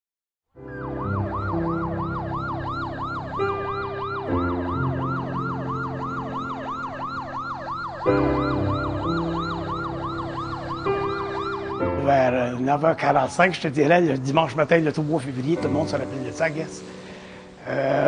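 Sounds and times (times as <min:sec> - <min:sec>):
siren yelping: 0:00.6 - 0:14.2.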